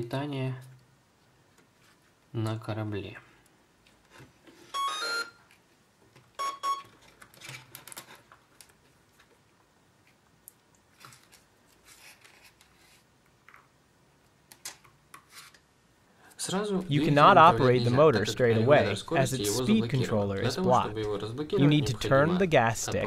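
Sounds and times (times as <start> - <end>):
speed controller beeps: 4.8 - 5.4, 6.4 - 6.9
wires clicking and rustling: 5.5 - 15.7.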